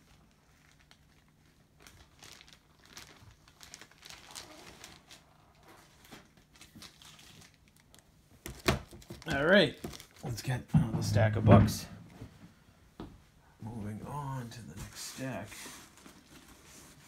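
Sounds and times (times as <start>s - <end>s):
packaging crinkling and rustling: 0.0s - 10.6s, 15.7s - 17.0s.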